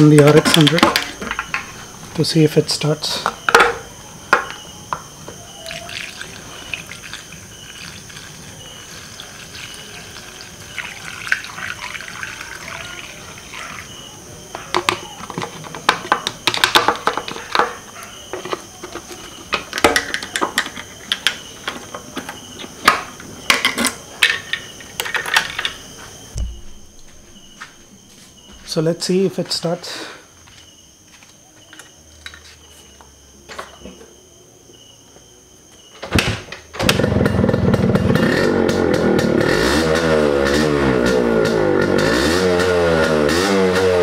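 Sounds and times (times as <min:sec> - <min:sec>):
clicks and knocks of handling: 0:14.6 - 0:25.8.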